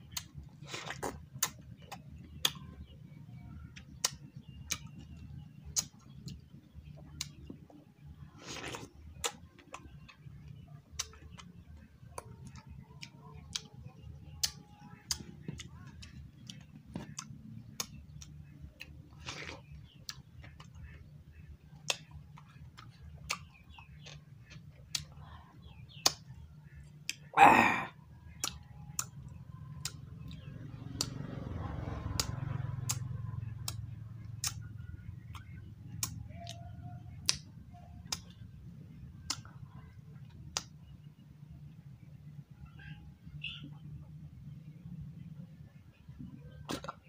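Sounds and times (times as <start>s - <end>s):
wet chewing mouth clicks: 0.1s - 2.8s, 3.8s - 7.7s, 8.3s - 21.1s, 21.8s - 31.2s, 32.1s - 36.6s, 37.2s - 38.5s, 39.2s - 40.7s, 46.6s - 47.0s.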